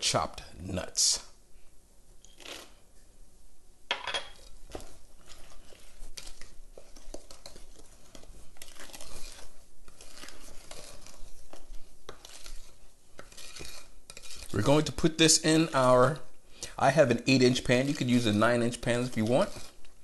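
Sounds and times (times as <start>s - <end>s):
wooden spoon stirring batter in bowl: 4.3s - 20.0s.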